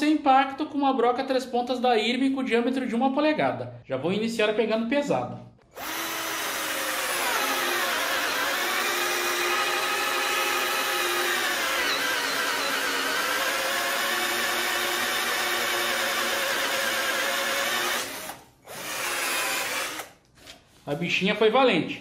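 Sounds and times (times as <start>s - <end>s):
cordless drill whining into wood: 5.7s - 20.2s.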